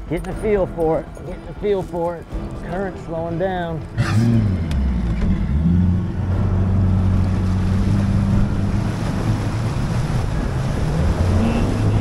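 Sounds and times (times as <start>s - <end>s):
wind and water rushing: 0.0s - 12.0s
outboard engine running: 3.9s - 12.0s.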